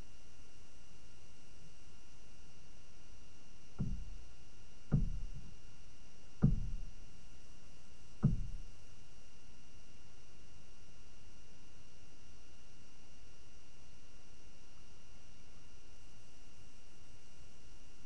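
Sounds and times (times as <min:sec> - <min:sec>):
thin whine tones: 0:00.0 - 0:18.0
dull low knocks: 0:03.8 - 0:04.3, 0:04.9 - 0:05.6, 0:06.4 - 0:06.9, 0:08.2 - 0:08.7.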